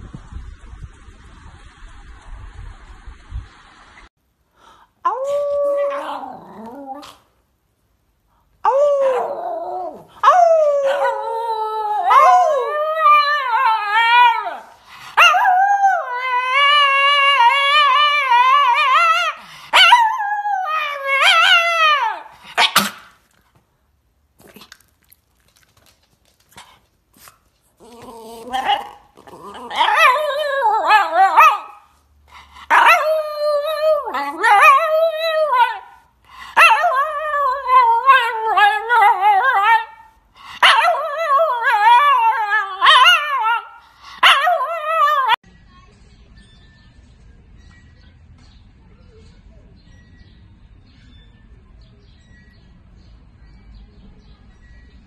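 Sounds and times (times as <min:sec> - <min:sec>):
dog howling: 0:05.1 - 0:07.1, 0:08.7 - 0:22.3, 0:27.8 - 0:31.8.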